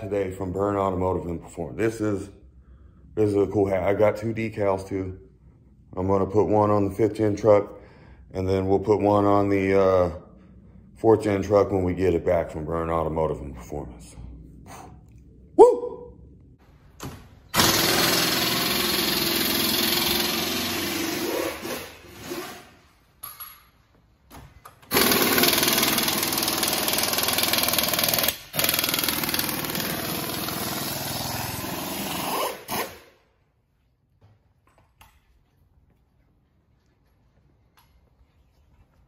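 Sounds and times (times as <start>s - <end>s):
power tool running: 17.6s - 22.3s, 24.9s - 33.1s.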